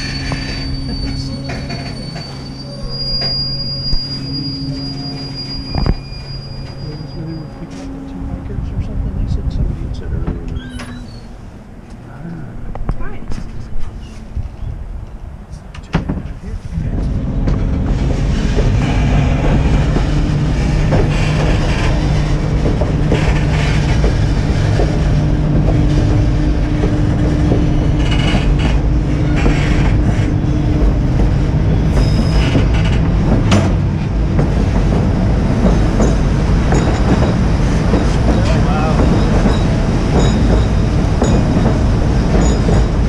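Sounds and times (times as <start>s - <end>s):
train wheels clattering on rails: 0.0s - 4.2s, 12.8s - 43.0s.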